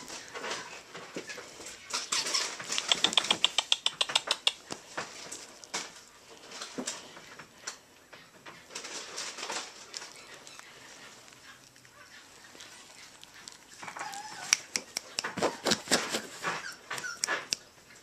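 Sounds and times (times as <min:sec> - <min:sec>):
puppy mouthing rustles: 0:00.0 - 0:07.8, 0:08.6 - 0:18.0
fast squeaky clicks: 0:00.1 - 0:05.9, 0:12.2 - 0:17.7.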